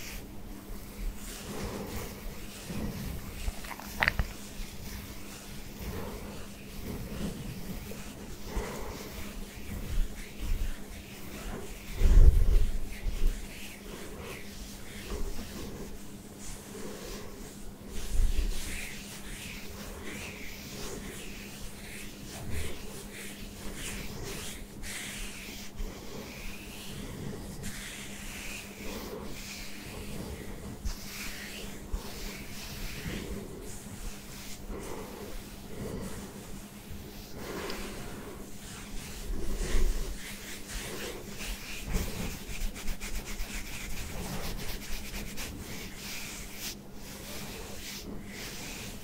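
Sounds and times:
hand rubbing stubbly scalp: 0.0s - 49.0s
fingertips scratching short hair: 0.8s - 15.8s, 26.0s - 49.0s.

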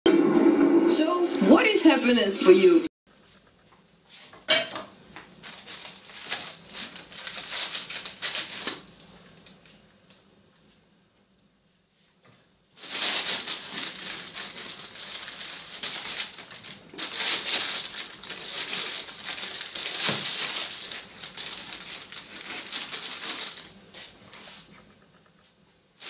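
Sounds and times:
plastic bag rustling: 5.4s - 9.3s, 12.8s - 24.8s.

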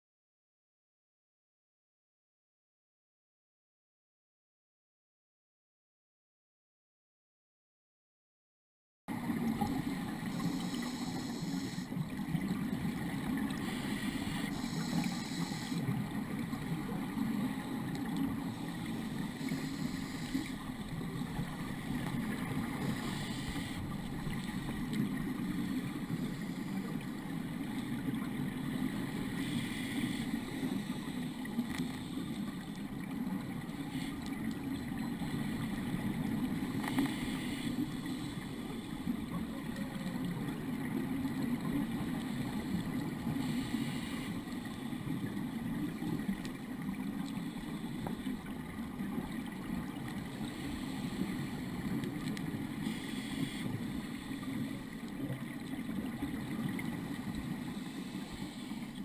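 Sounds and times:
muffled underwater rushing: 9.1s - 59.0s
exhaled bubbles hissing: 9.2s - 59.0s.

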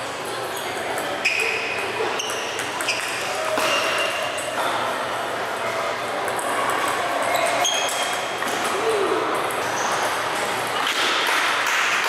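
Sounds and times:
murmur of voices: 0.0s - 12.0s.

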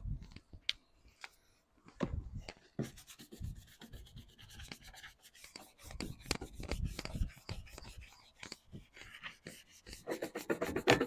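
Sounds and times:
hand scrubbing painted metal: 2.8s - 11.0s.

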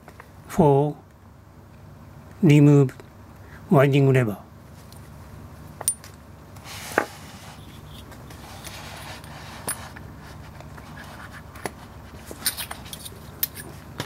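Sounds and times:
soft rubbing: 6.6s - 12.4s.

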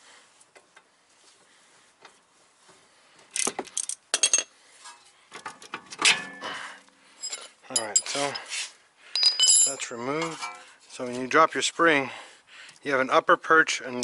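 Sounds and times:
metal tools clinking on paving: 3.4s - 4.5s, 7.2s - 8.5s, 9.1s - 10.8s
person speaking: 7.7s - 8.6s.

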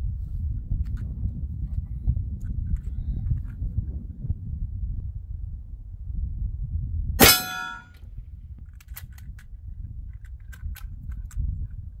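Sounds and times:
air pistol shot: 7.2s - 7.8s
pellet ringing steel target: 7.2s - 7.8s.

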